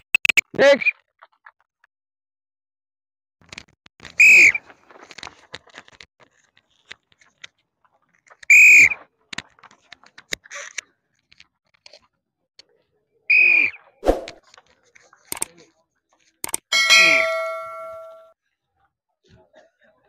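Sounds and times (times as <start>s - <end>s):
shrill whistle blasts: 4.2s - 4.6s, 8.5s - 9.0s, 13.3s - 13.8s.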